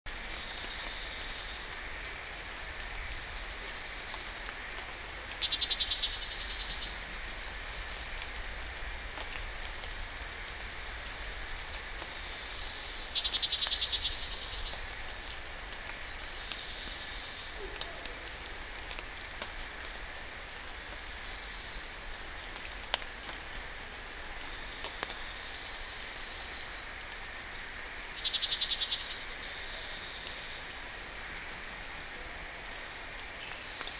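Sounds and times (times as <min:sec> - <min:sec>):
insects chirping: 0:00.2 - 0:33.9.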